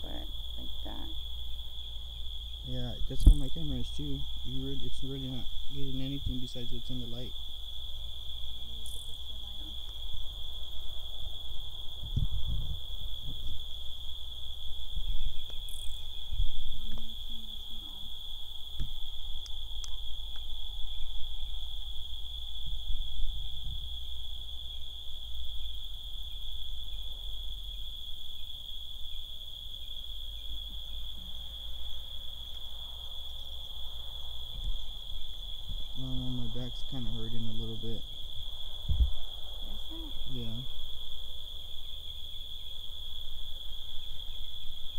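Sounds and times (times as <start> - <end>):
crickets trilling: 0.0 - 44.9
knocks on microphone: 3.2 - 3.5.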